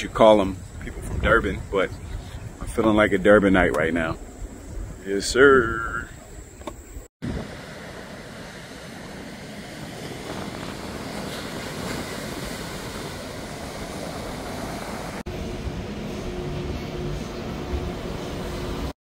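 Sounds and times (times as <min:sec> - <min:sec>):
ocean surf breaking on beach: 0:07.2 - 0:18.9.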